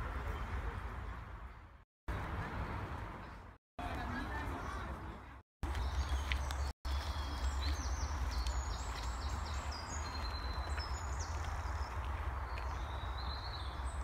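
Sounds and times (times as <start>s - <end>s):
footsteps on dirt path: 5.6s - 13.4s
birds singing: 5.6s - 14.0s.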